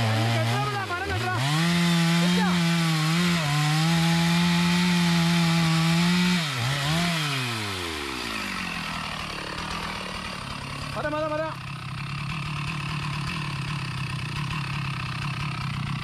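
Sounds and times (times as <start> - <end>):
chainsaw cutting wood: 0.0 - 16.0.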